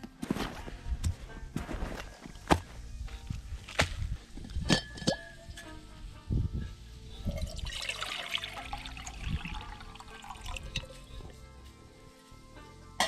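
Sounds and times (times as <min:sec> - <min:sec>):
metal bottle and pot knocks: 0:04.4 - 0:05.7
water pouring into metal pot: 0:07.2 - 0:11.0.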